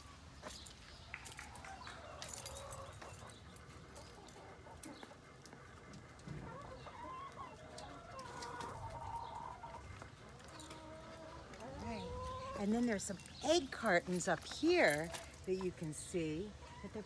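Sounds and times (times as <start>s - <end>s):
chickens clucking: 0.0s - 17.0s
drawn-out wavering chicken calls: 1.3s - 12.8s.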